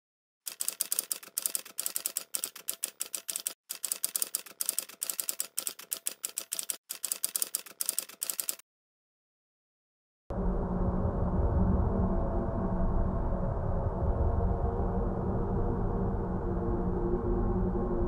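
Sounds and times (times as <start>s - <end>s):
rapid keyboard key clicks: 0.5s - 8.6s.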